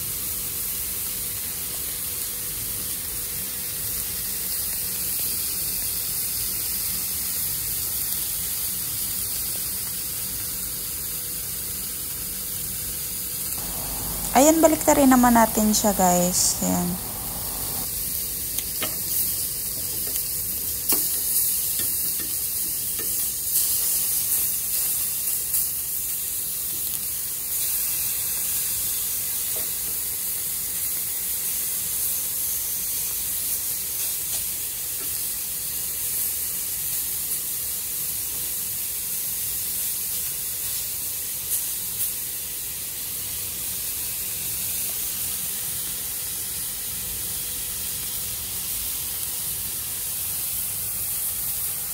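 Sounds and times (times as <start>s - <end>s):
chicken sizzling in a grill pan: 0.0s - 51.9s.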